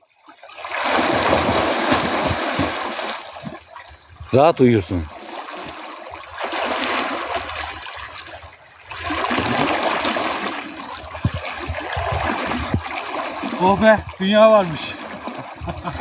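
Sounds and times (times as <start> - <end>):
water rushing and slapping: 0.0 - 16.0
swimmer splashing: 0.3 - 3.9, 5.0 - 16.0.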